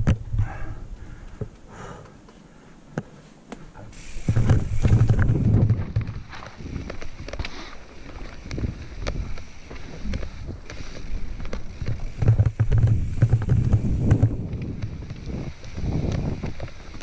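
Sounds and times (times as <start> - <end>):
bike clattering and rattling: 3.9 - 17.0
wind on microphone: 4.2 - 7.4, 8.4 - 17.0
tyres rumbling over rocks: 4.2 - 17.0.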